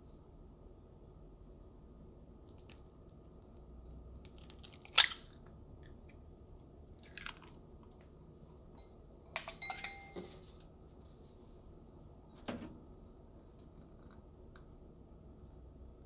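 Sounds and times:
egg cracking: 4.2 - 5.4, 7.0 - 8.0.

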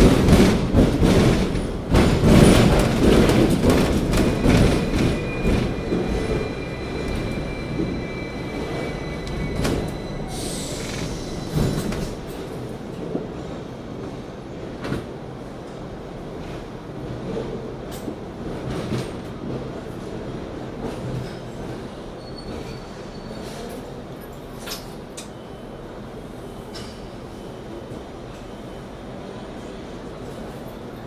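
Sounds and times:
track clacks: 0.0 - 8.0
tram rumbling on rails: 0.0 - 31.0
high wheel squeal: 4.3 - 11.9.

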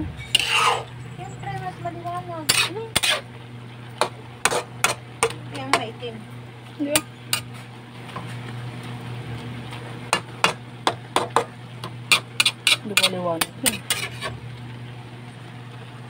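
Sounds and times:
spatula scraping a wok: 0.0 - 1.6, 2.4 - 3.3, 4.0 - 5.4, 7.0 - 7.7, 10.2 - 14.4
low hum: 0.0 - 10.9.

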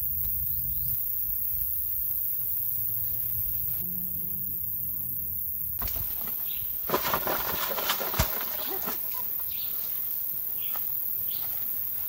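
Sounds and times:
leaves and branches rustling: 5.8 - 12.0
bird chirping: 9.1 - 11.6.

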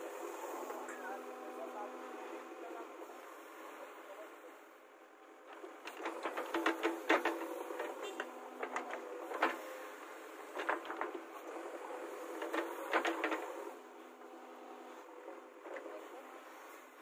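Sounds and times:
bucket clanks and knocks: 5.9 - 9.6.

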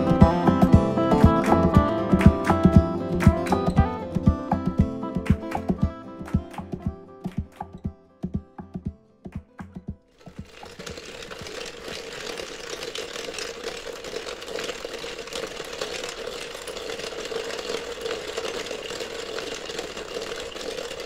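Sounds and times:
plucked guitar notes: 0.0 - 9.9
dense crackling: 10.2 - 21.0.

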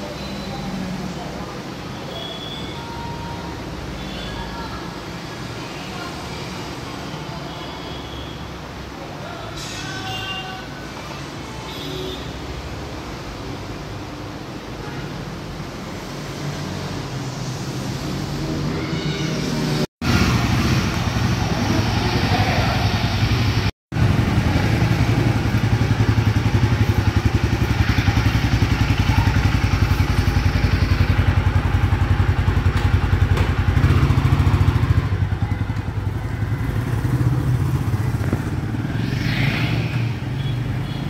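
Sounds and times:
motorcycle engine running: 20.1 - 39.3.

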